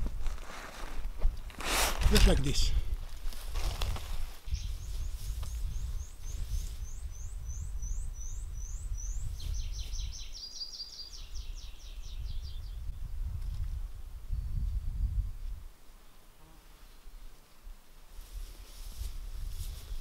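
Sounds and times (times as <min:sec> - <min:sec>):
songbird singing: 0:04.4 - 0:13.4.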